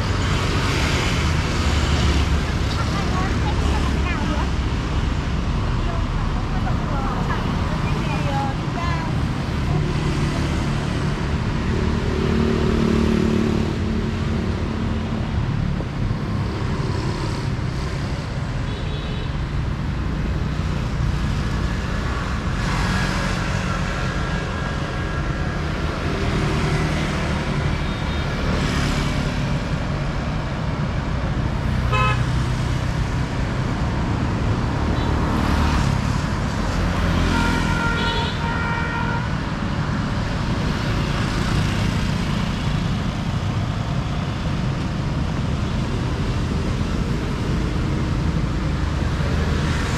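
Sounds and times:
traffic rumble: 0.0s - 49.9s
vehicle horn toots: 31.9s - 32.2s.

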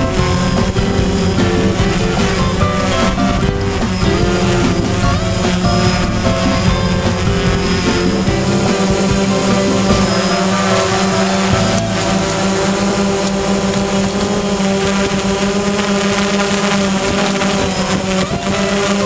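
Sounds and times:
drone propellers buzzing: 0.0s - 19.0s.

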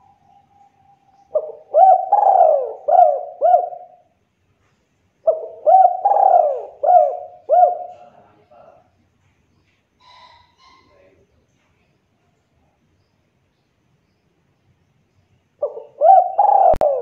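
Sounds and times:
dove cooing: 0.0s - 4.1s, 5.2s - 8.2s, 15.6s - 17.0s.

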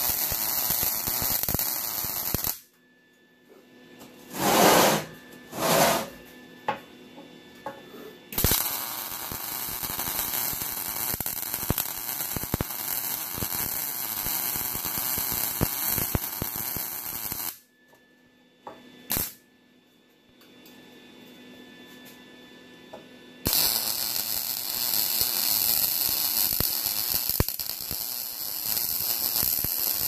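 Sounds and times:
welding arc crackling sizzle: 0.0s - 2.7s, 8.4s - 17.6s, 19.1s - 19.4s, 23.4s - 30.0s.

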